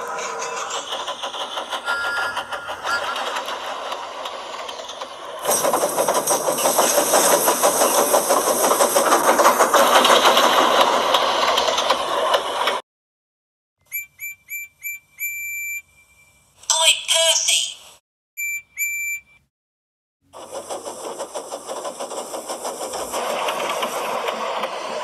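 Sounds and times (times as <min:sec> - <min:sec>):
model train wheels and motor whirring: 0:00.0 - 0:12.8, 0:20.3 - 0:25.0
short electronic beeps: 0:13.9 - 0:16.4, 0:18.4 - 0:19.5.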